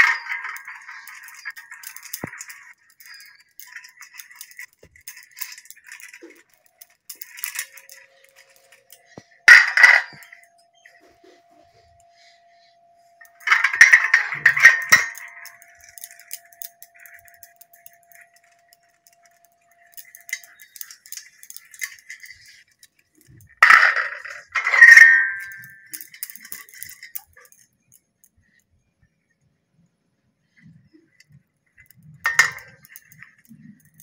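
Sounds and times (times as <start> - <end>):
metal plates clattering: 0.0 - 10.5, 13.2 - 22.6, 23.2 - 27.6, 32.2 - 34.0
metallic ring: 0.0 - 27.6.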